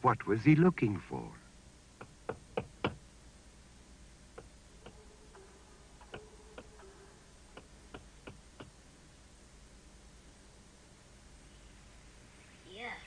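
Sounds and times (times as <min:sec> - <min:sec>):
knocking on a wall: 0:02.0 - 0:03.0.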